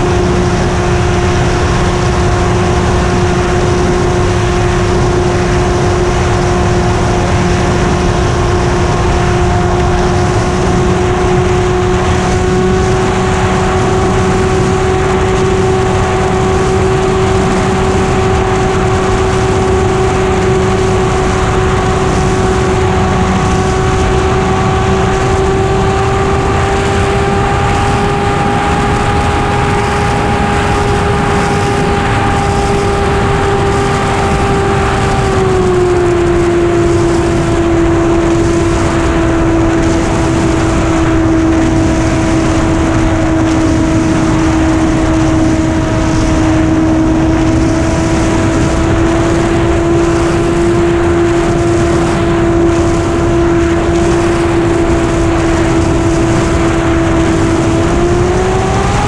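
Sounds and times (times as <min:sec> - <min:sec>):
model airplane engine and propeller: 0:00.0 - 0:59.0
wind rush over airframe: 0:00.0 - 0:59.0.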